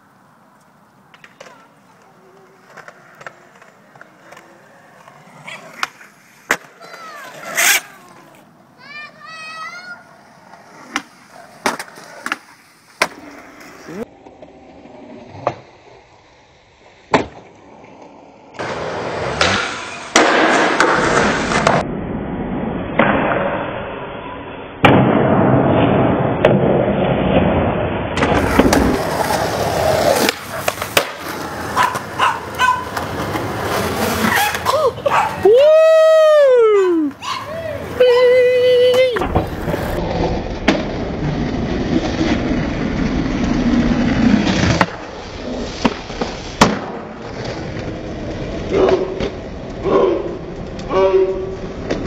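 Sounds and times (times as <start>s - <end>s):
skateboard wheels rolling on concrete: 0.0s - 52.0s
skateboard clacks: 0.9s - 9.9s, 18.6s - 21.8s, 28.2s - 35.5s, 44.7s - 48.0s.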